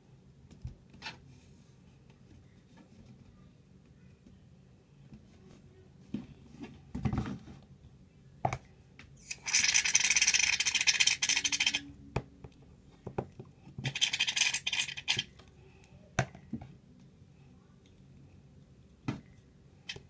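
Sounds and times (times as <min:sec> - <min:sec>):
aerosol can sputtering hiss: 0:09.3 - 0:11.8, 0:13.9 - 0:15.2.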